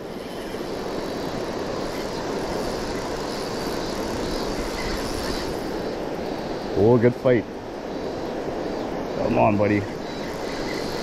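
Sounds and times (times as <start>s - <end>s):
river flowing over stones: 0.0s - 11.0s.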